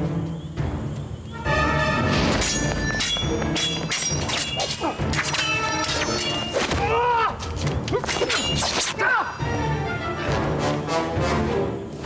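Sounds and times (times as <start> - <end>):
orchestral music: 0.0 - 6.9, 8.6 - 12.0
swords clashing: 2.2 - 9.2.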